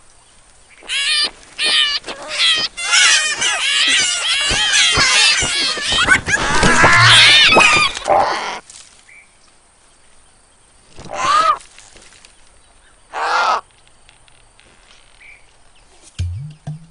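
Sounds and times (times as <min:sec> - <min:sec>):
overlapping cries: 0:00.8 - 0:08.6
cartoon bird cawing: 0:00.9 - 0:08.6.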